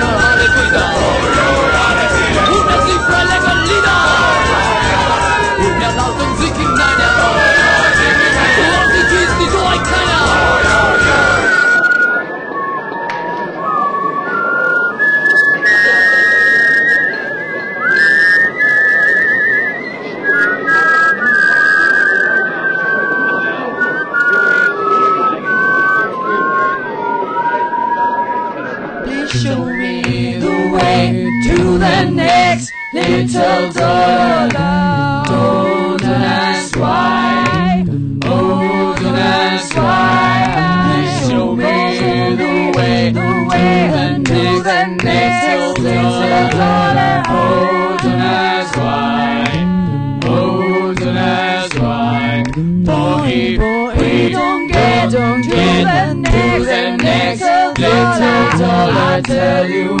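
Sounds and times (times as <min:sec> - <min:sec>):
voices singing a capella: 0:00.0 - 0:12.0, 0:29.0 - 1:00.0.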